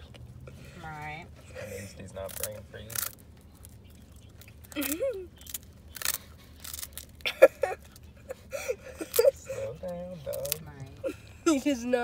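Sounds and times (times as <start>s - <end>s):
dog crunching ice cream cone: 2.0s - 8.1s, 10.1s - 10.8s.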